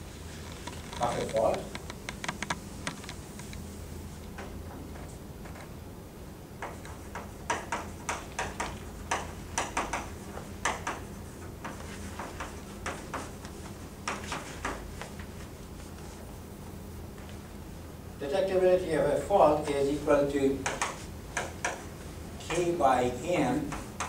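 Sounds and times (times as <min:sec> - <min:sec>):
chalk tapping on blackboard: 0:06.6 - 0:15.3, 0:20.6 - 0:22.8, 0:23.5 - 0:24.0.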